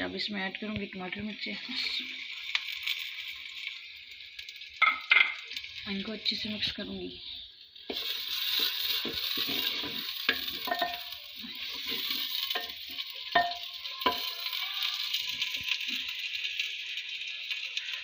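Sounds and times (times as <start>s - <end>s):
vegetables sizzling in hot oil: 0.0s - 18.0s
spoon scraping and knocking pot: 7.9s - 14.4s.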